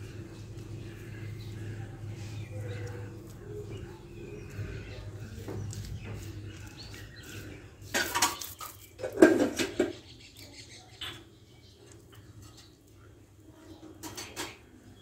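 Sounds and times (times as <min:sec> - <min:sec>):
hands rubbing and patting wet mud: 0:00.0 - 0:10.5.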